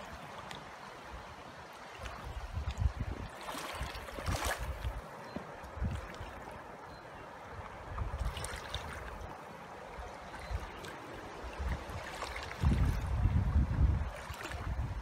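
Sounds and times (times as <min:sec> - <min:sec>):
river water rushing: 0:00.0 - 0:15.0
wind buffeting microphone: 0:02.1 - 0:06.4, 0:07.5 - 0:09.3, 0:10.0 - 0:15.0.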